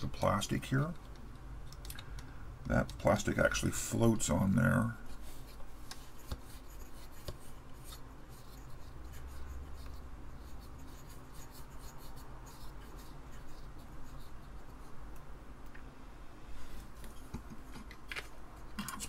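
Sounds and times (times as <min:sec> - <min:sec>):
small clicks of parts: 0:01.0 - 0:03.0
hands rubbing parts: 0:05.0 - 0:15.3.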